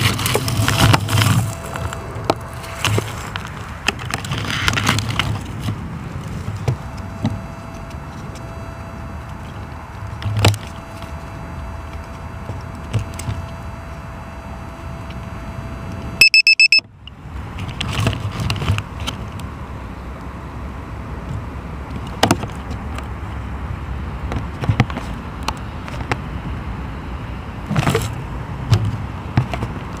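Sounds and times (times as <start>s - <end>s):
low rumble of wind: 0.0s - 30.0s
short high electronic beeps: 16.2s - 16.8s.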